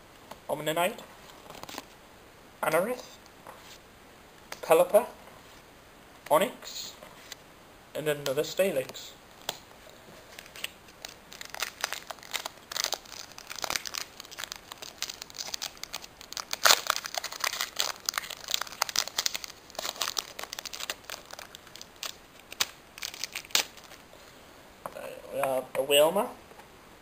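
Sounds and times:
foil wrapper crinkling: 10.3s - 24.1s.

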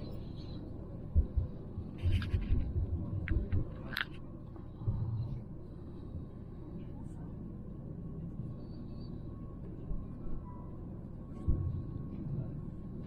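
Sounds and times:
train carriage rumble: 0.0s - 13.0s.

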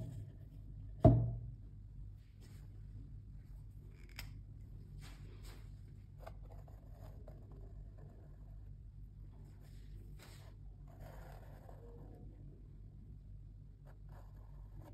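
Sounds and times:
canvas thumping on tabletop: 1.0s - 1.5s.

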